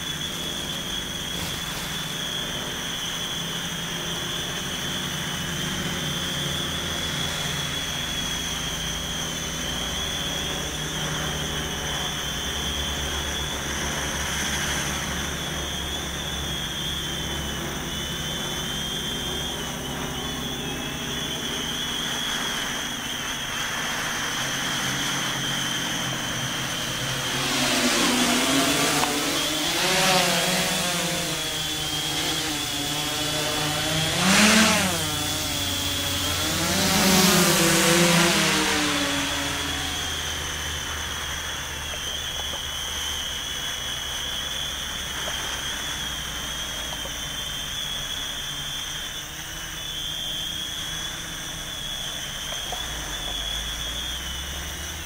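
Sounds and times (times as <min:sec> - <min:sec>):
drone motors buzzing with high whine: 0:00.0 - 0:55.0.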